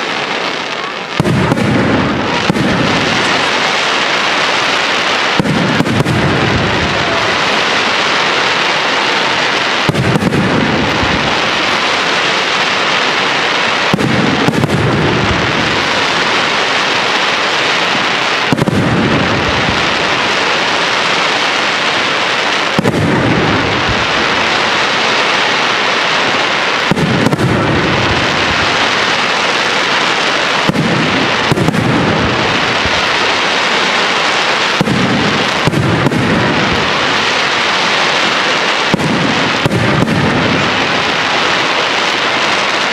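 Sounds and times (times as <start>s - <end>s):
fireworks hissing: 0.0s - 42.9s
firework shells booming: 1.1s - 42.9s.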